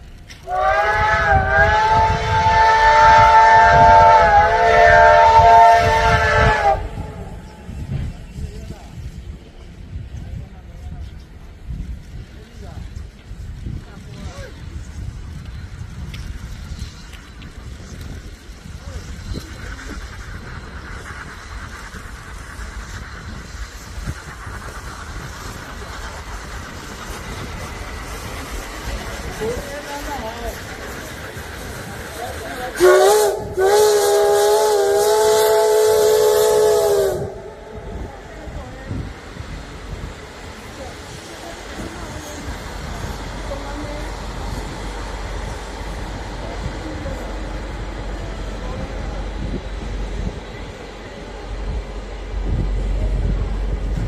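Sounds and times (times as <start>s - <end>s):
steam locomotive whistle blast: 0.4s - 7.8s, 32.8s - 38.1s
low rumble: 1.1s - 32.7s, 34.6s - 54.0s.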